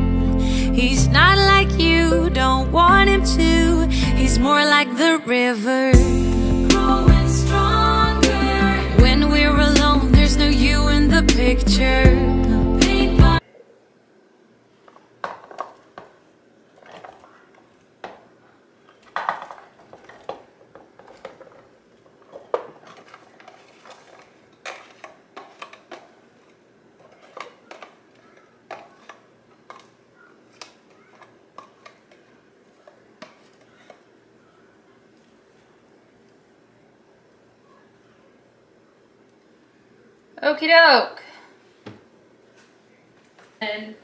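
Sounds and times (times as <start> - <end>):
plastic container handled: 14.8 - 34.1
potato cubes dropping into pot: 16.8 - 26.2, 27.0 - 32.2.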